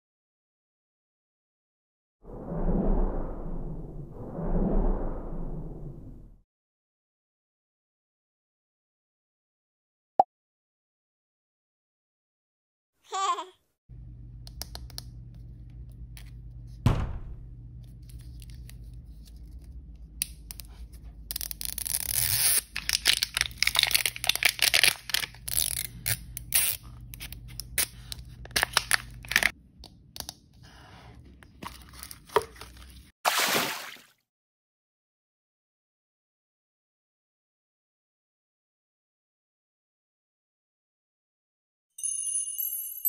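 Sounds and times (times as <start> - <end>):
short rush of noise: 2.3 - 6.4
thump: 16.8 - 17.5
plastic wrapper tearing: 21.3 - 29.5.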